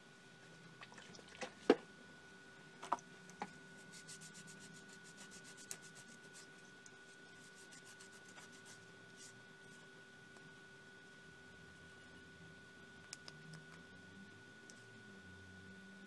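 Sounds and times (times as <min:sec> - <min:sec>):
tissue scrubbing circuit board: 0:03.8 - 0:06.6, 0:07.4 - 0:09.4.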